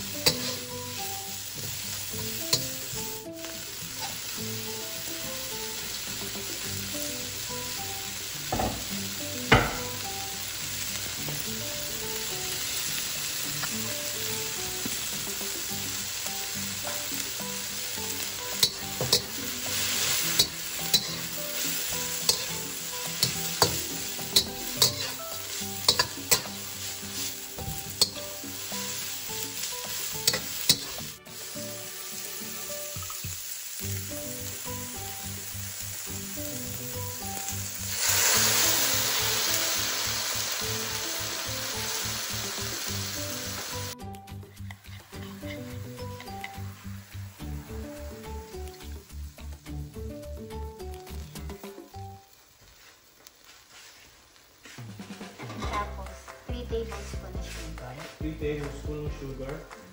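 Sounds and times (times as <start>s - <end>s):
metal spatula stirring in wok: 0.0s - 3.2s, 16.6s - 31.4s, 44.4s - 47.7s
vegetables sizzling in oil: 0.0s - 58.2s
spatula clicking against wok: 18.6s - 19.3s, 20.4s - 21.2s, 22.2s - 22.5s, 23.2s - 25.2s, 25.9s - 26.5s, 30.2s - 31.0s.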